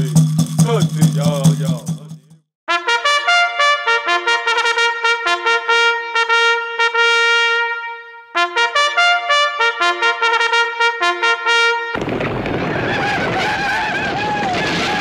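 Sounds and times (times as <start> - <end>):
solo trumpet playing: 2.7 - 12.0.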